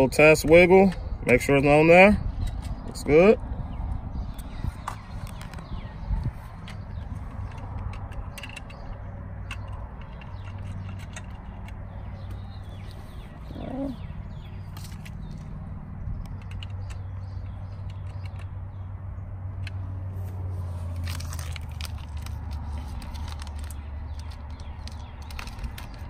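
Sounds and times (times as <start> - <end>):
bird chirps: 11.9 - 15.5.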